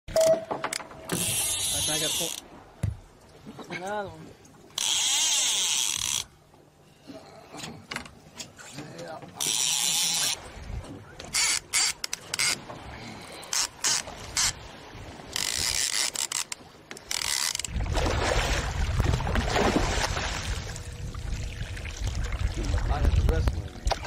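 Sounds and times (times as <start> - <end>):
fishing reel ratcheting: 1.1 - 2.4, 4.8 - 6.4, 9.4 - 10.4, 15.3 - 17.7
low rumble: 17.8 - 24.0.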